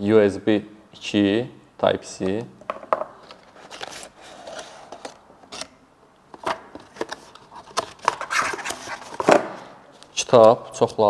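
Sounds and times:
cardboard rustling and scraping: 3.2s - 5.7s, 6.4s - 9.7s.

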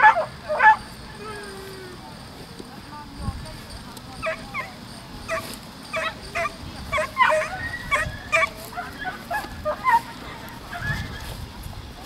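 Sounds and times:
dog yipping: 0.0s - 1.6s, 4.2s - 4.7s, 5.3s - 11.3s.

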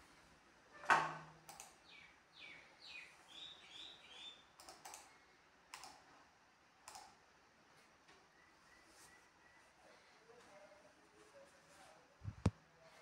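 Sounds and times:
sharp clicks: 1.5s - 1.8s, 4.6s - 5.1s, 5.7s - 6.0s, 6.8s - 7.2s
small bird chirping: 1.6s - 5.3s.

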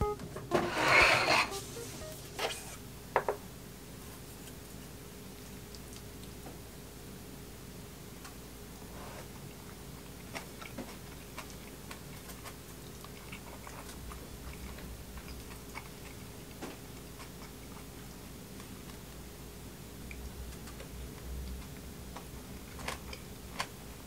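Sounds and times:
chewing crunches: 10.0s - 17.9s.

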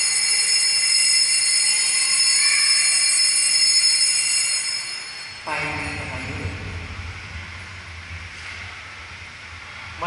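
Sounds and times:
small bells ringing: 0.0s - 6.7s.

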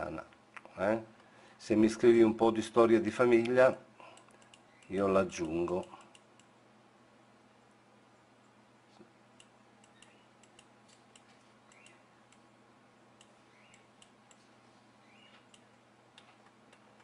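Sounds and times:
low steady hum: 0.0s - 17.0s
computer controls clicking: 3.4s - 6.5s, 9.4s - 12.5s, 13.2s - 14.5s, 15.2s - 17.0s.

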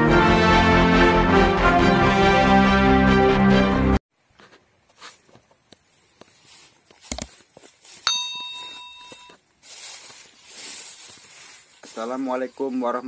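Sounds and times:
bell-like ding: 8.0s - 9.4s.

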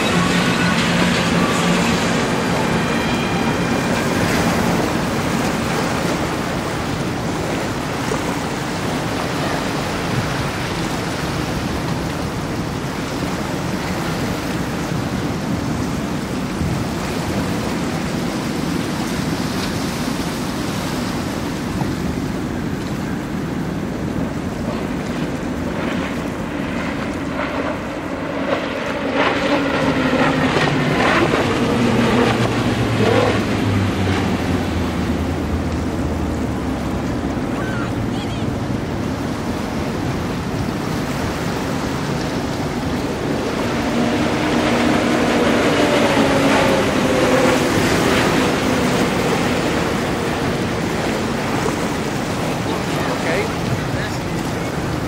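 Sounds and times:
outboard engines droning: 0.0s - 55.0s
wind on microphone: 0.0s - 55.0s
spray and waves hissing: 17.3s - 55.0s.

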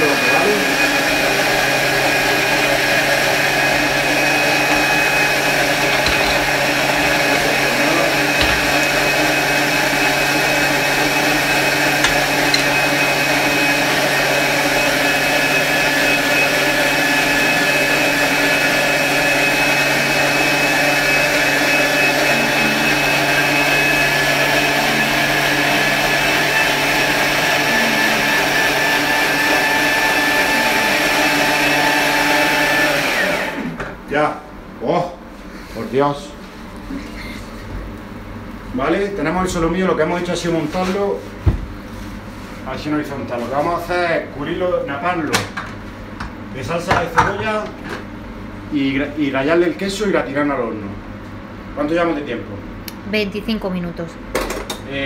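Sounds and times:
food processor motor whine: 0.0s - 34.0s.

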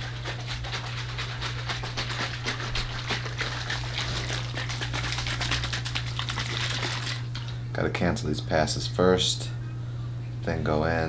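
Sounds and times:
water bottle rattling when shaken: 0.0s - 7.5s
steady low hum: 0.0s - 11.0s.

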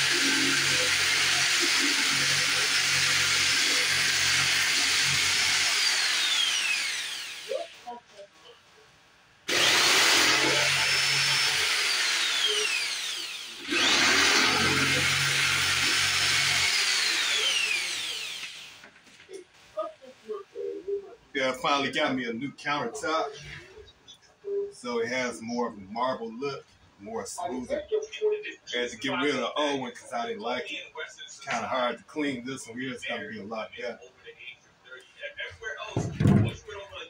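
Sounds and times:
electric saw cutting wood: 0.0s - 7.8s, 9.5s - 18.8s.

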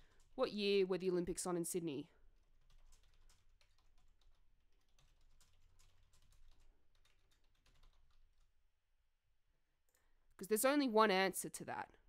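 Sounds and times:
computer keyboard keystrokes: 2.4s - 8.5s.

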